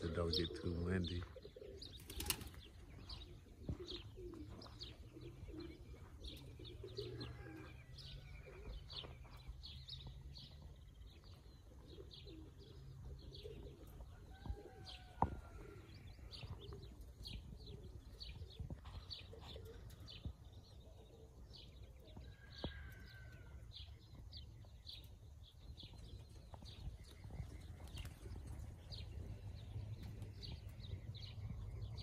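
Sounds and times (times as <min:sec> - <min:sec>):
small birds chirping: 0:00.0 - 0:32.0
pigeon cooing: 0:00.2 - 0:02.4, 0:03.1 - 0:08.8, 0:11.7 - 0:20.2.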